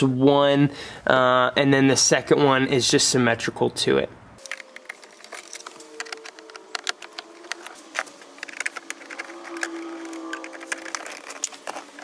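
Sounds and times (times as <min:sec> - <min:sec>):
screwdriver clicking on plastic trim: 0:06.0 - 0:12.0.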